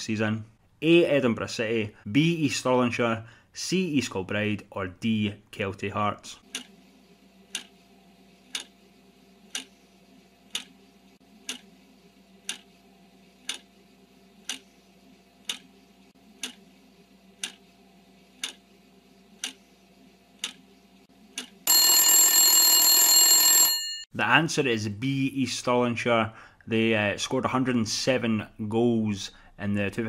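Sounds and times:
clock ticking: 6.5s - 6.7s, 7.5s - 7.7s, 8.5s - 8.7s, 9.5s - 9.7s, 10.5s - 10.7s, 11.4s - 11.7s, 12.4s - 12.7s, 13.4s - 13.7s, 14.4s - 14.7s, 15.4s - 15.7s, 16.4s - 16.6s, 17.4s - 17.6s, 18.4s - 18.6s, 19.4s - 19.6s, 20.4s - 20.6s
ringing alarm bell: 21.7s - 24.1s.

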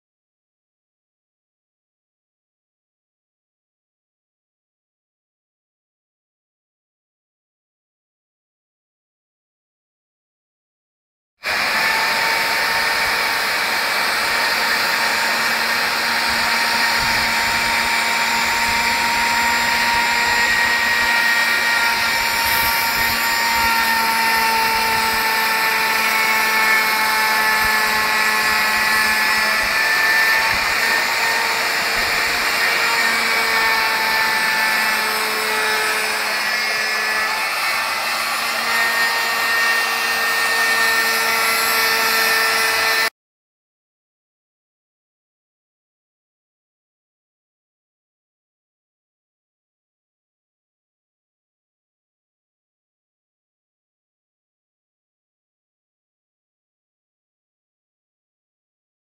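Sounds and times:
router cutting wood: 11.4s - 43.1s.

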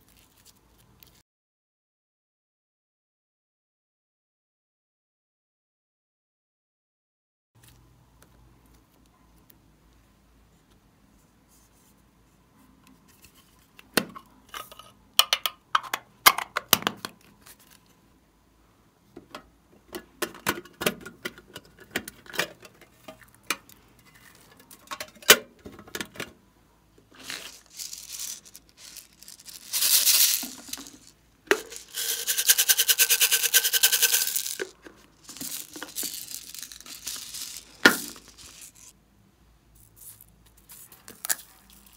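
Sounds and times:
plastic ripping: 27.2s - 31.0s
plastic packaging crinkling: 27.2s - 38.9s.

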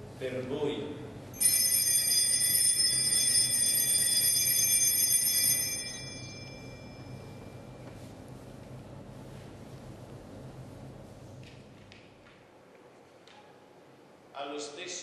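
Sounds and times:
small bells jingling: 1.4s - 7.4s.

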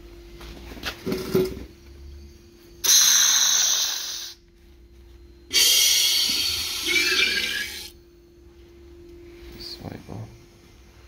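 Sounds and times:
compressed air hissing: 2.8s - 4.4s, 5.5s - 7.2s.

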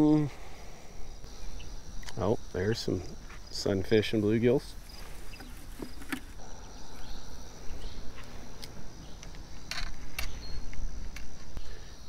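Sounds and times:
insect chirring: 0.0s - 12.0s
rustling of fishing gear: 4.6s - 6.4s.

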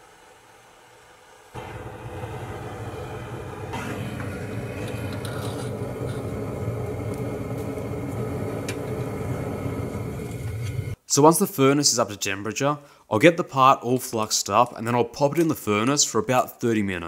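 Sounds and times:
gas torch burner roaring: 0.0s - 11.0s.

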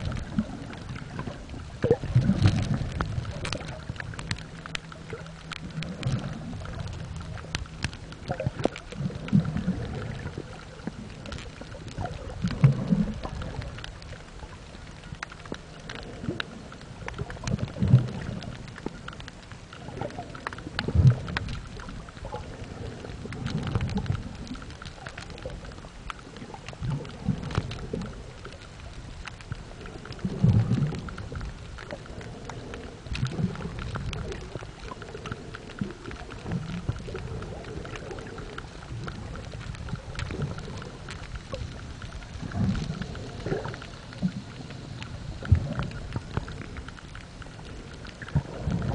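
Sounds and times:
light underwater crackle: 0.0s - 48.9s.

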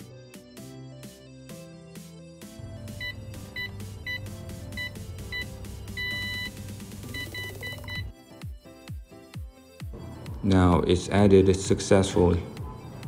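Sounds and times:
background music: 0.0s - 13.0s
electronic lock beeps: 2.9s - 8.1s.

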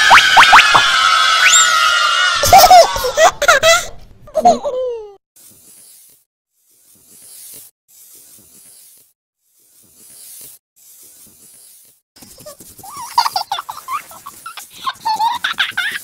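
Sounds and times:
faint scratchy hissing strokes: 5.4s - 12.0s.

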